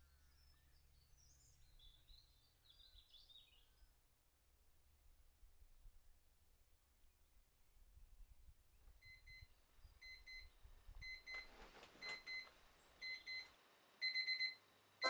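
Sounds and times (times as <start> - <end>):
electronic alarm beeping: 14.0 - 14.6.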